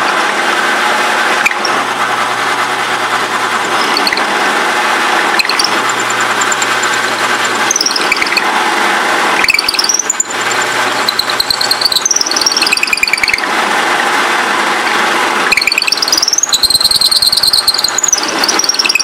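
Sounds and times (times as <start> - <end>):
drill press motor running: 0.0 - 19.0
high squeal of drilling: 3.5 - 4.4, 5.2 - 8.6, 9.2 - 13.5, 14.8 - 19.0.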